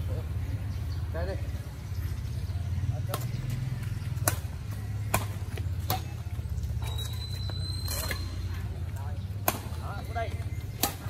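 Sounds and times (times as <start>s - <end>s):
badminton rackets hitting shuttlecock: 4.2s - 7.1s, 9.4s - 11.0s.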